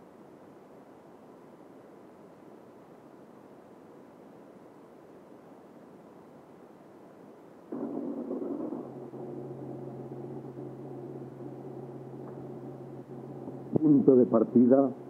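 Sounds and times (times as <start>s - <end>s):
airliner engine drone: 7.7s - 15.0s.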